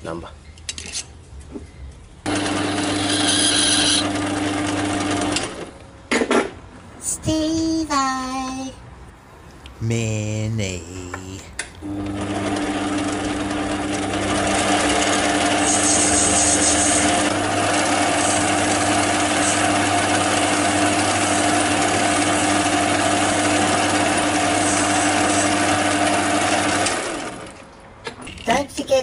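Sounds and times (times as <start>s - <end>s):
lathe humming and cutting brass: 2.3s - 4.2s, 11.8s - 26.9s.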